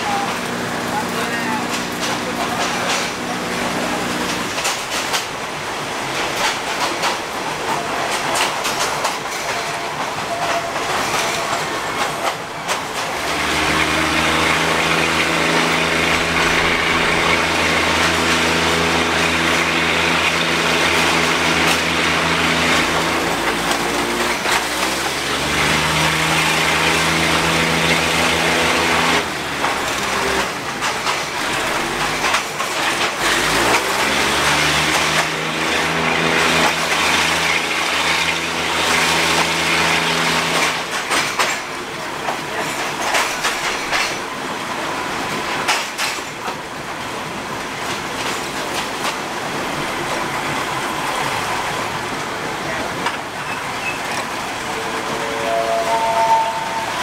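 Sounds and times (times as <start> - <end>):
diesel engine drone: 0.0 - 4.7, 13.1 - 30.7, 53.7 - 57.0
train wheels clattering on rails: 0.0 - 57.0.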